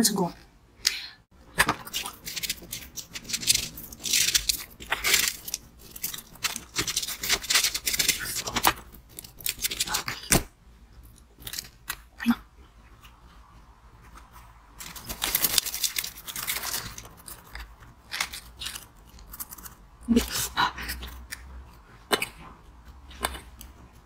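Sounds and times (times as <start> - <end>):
ice crunching and rustling: 1.8 - 10.3, 14.8 - 19.7.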